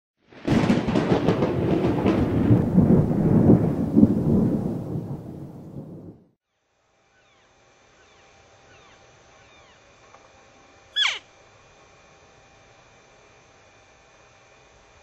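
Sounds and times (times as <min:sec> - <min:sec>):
thunder crack and rumble: 0:00.3 - 0:06.4.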